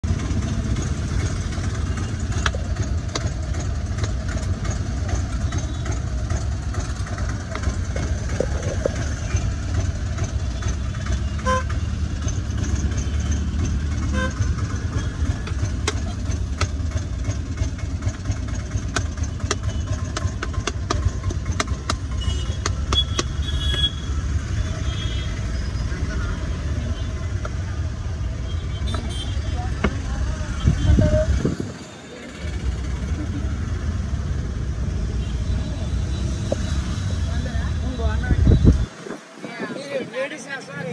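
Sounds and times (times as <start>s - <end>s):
street traffic rumble: 0.0s - 40.9s
car horn toots: 11.2s - 11.9s, 14.1s - 15.2s, 22.1s - 25.4s.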